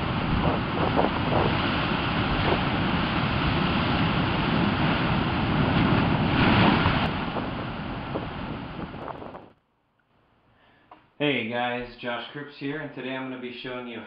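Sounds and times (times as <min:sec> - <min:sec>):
ocean surf breaking on rocks: 0:00.0 - 0:09.5
wind rumbling on microphone: 0:00.0 - 0:09.6.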